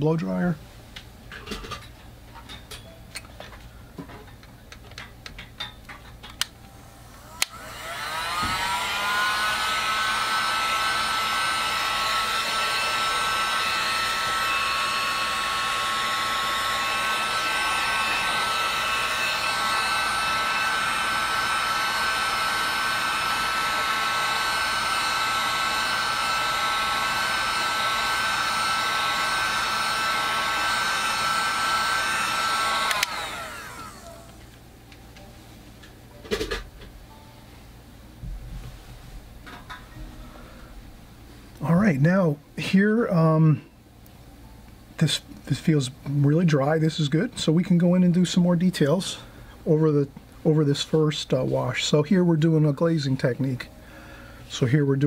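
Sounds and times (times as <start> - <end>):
blow dryer whine: 6.4 - 37.3.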